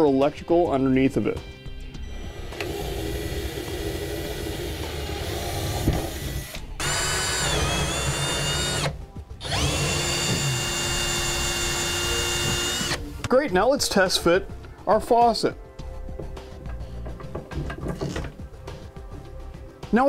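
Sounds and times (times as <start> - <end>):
cordless drill motor whining: 2.1 - 13.1.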